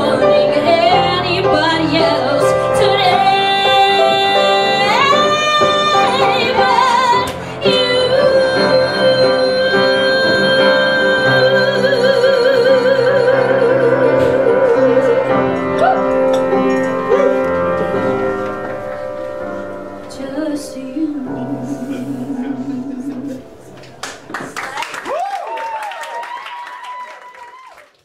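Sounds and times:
woman singing: 0.0 - 16.1, 20.1 - 23.6
piano accompaniment: 0.0 - 26.4.

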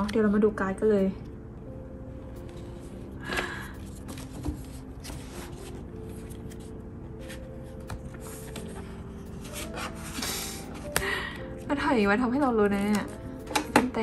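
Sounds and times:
faint background music: 0.0 - 14.0
paper pages rustling: 3.4 - 11.0.

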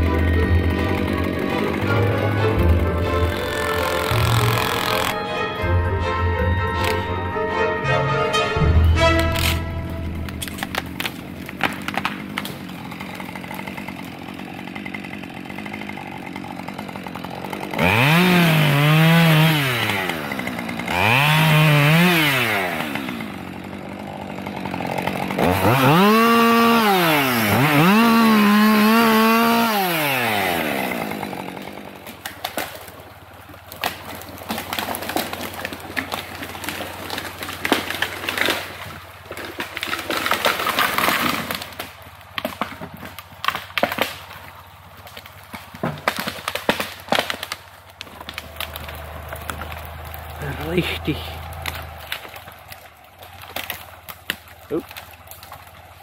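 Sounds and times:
chainsaw revving and cutting: 0.0 - 5.2, 9.2 - 56.0
sharp cracks and knocks: 9.2 - 18.2, 30.9 - 56.0.

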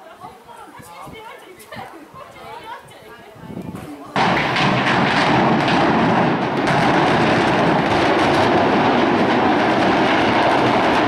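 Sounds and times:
building collapsing rumble: 4.2 - 11.0
demolition charges cracking: 4.2 - 11.0.

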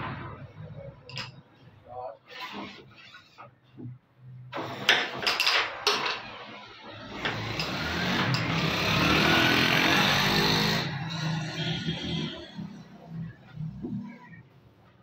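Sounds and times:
motor revving up: 7.1 - 11.2.

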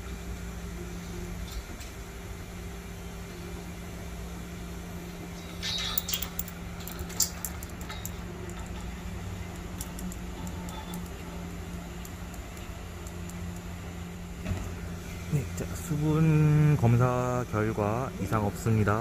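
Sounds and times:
steady low hum: 0.0 - 19.0
metal rod clinking and scraping: 5.8 - 8.9.

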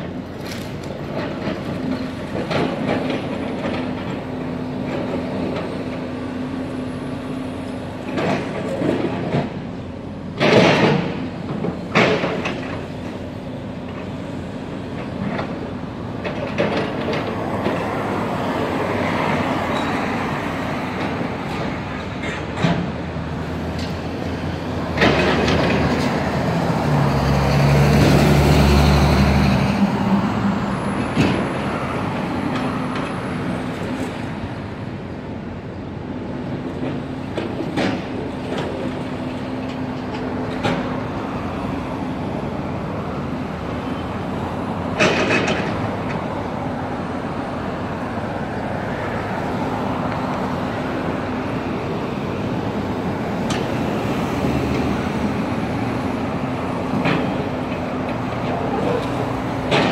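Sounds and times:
excavator diesel engine running: 0.0 - 59.9
traffic passing: 0.0 - 59.9.

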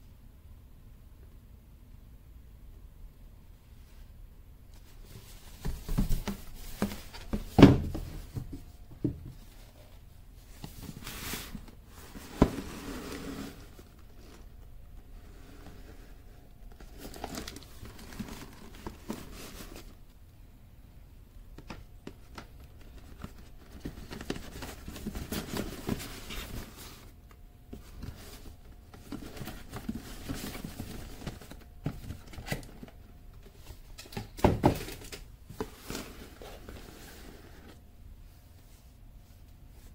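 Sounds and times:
cardboard box rustling and scraping: 10.6 - 14.5, 15.1 - 20.0, 23.6 - 27.1, 27.8 - 32.7, 35.6 - 37.8.

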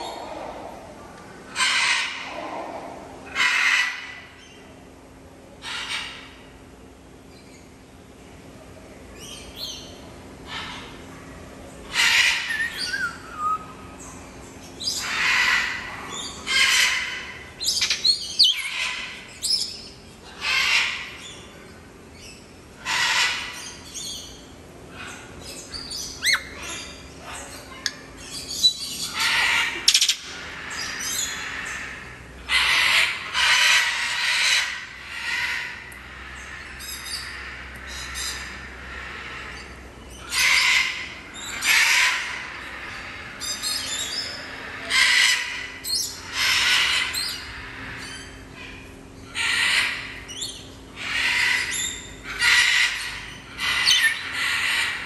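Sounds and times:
parrot squawking: 11.9 - 13.7, 26.2 - 28.0, 29.0 - 48.2, 49.3 - 55.0.

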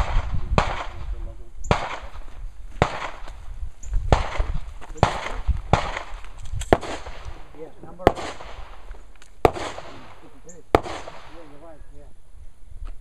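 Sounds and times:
gunshots with echo: 0.0 - 2.2, 2.8 - 3.3, 4.1 - 11.7.

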